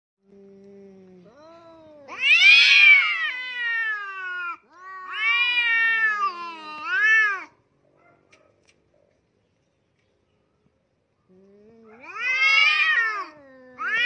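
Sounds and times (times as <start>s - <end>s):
cats yowling: 1.3s - 7.6s, 11.7s - 14.0s.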